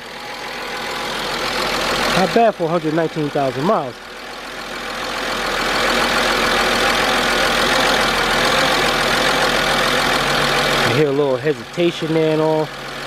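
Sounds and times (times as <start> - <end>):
car engine idling rough: 0.0 - 13.0.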